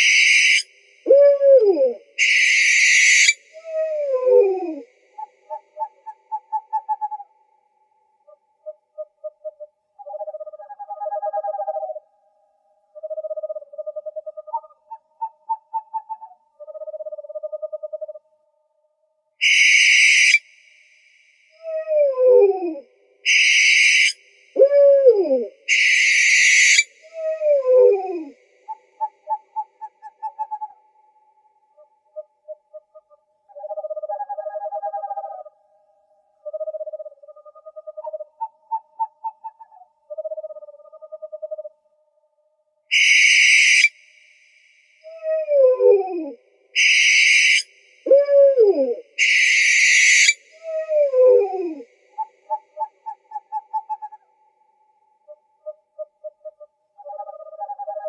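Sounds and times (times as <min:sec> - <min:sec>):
owl hissing screech: 0:00.0 - 0:00.7, 0:02.2 - 0:03.4, 0:19.4 - 0:20.4, 0:23.3 - 0:24.2, 0:25.7 - 0:26.9, 0:42.9 - 0:43.9, 0:46.8 - 0:47.7, 0:49.2 - 0:50.4
owl calling: 0:00.0 - 0:07.3, 0:08.3 - 0:12.0, 0:13.0 - 0:18.2, 0:19.4 - 0:20.5, 0:21.6 - 0:30.9, 0:31.7 - 0:35.6, 0:36.4 - 0:41.7, 0:42.9 - 0:44.0, 0:45.0 - 0:54.3, 0:55.2 - 0:58.0.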